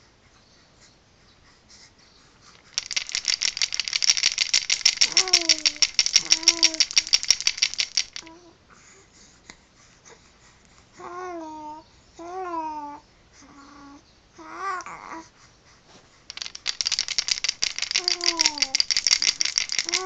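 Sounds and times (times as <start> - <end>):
baby rattle shaking: 2.5 - 8.3, 16.3 - 20.0
baby cooing: 5.0 - 7.1, 11.0 - 15.2, 17.9 - 18.8.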